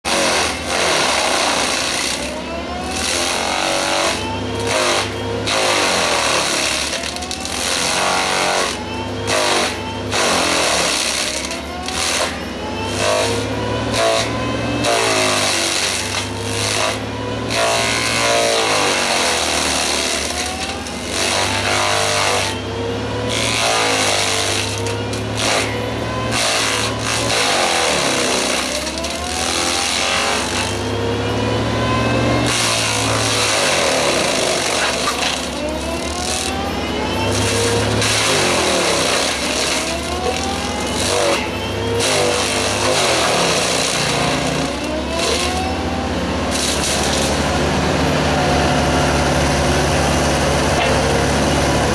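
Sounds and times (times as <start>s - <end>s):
excavator engine running: 0.1s - 51.9s
mulcher rotor whine: 24.6s - 51.9s
wood cracking: 26.3s - 30.8s, 32.3s - 41.4s, 46.5s - 47.5s.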